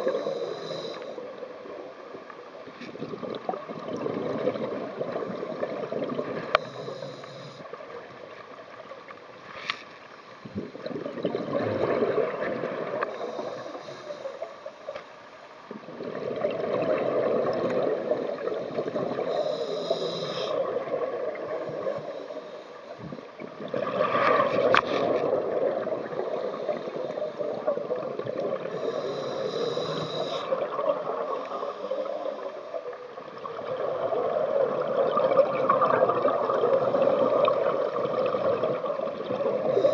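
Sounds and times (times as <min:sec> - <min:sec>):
regulator hiss: 0:00.0 - 0:01.4, 0:06.4 - 0:07.7, 0:13.0 - 0:15.0, 0:18.4 - 0:20.7, 0:21.5 - 0:23.0, 0:28.6 - 0:30.6, 0:31.2 - 0:32.9
exhaled bubbles gurgling: 0:00.0 - 0:09.1, 0:10.4 - 0:14.6, 0:15.7 - 0:39.9.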